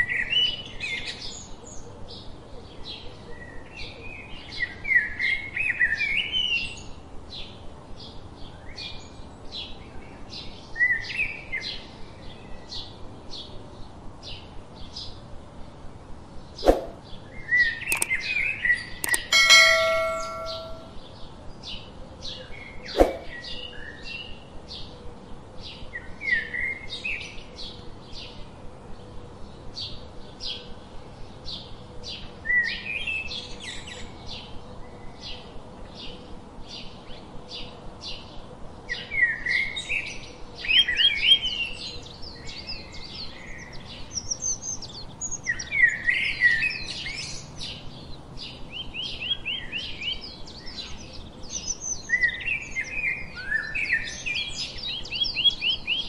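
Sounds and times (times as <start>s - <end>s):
sparrows chirping: 40.7s - 56.0s.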